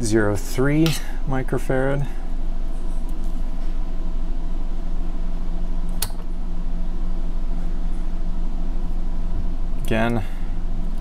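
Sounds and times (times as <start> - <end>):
steady low hum: 0.0 - 11.0
sharp click: 5.9 - 6.3.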